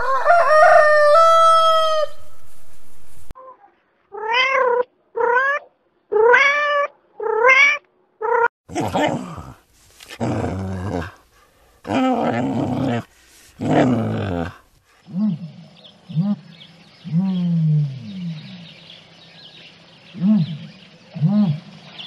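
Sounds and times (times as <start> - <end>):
rough growl-like animal calls: 8.2 - 11.2, 11.9 - 18.8.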